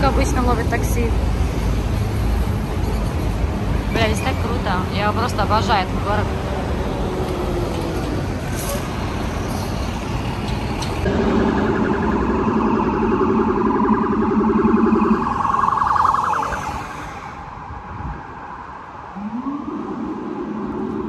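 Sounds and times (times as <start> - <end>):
street traffic: 0.0 - 21.0
pulsing siren-like warning tone: 11.1 - 21.0.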